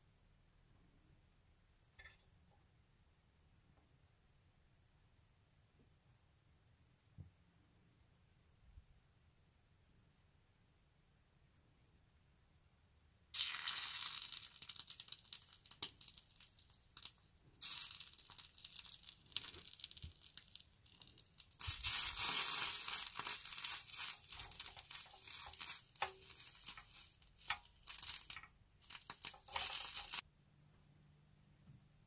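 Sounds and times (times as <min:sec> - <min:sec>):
spatula scraping metal pot: 0:21.6 - 0:30.2.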